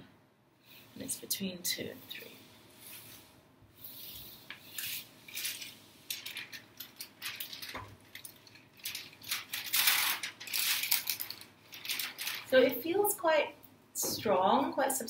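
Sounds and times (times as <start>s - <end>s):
plastic and paper crinkling: 4.6s - 13.0s.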